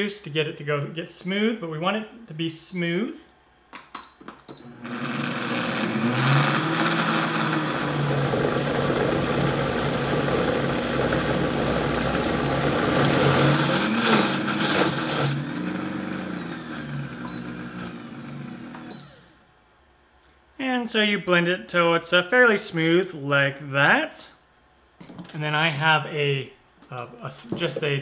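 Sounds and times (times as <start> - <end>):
blender running: 4.6 - 19.4.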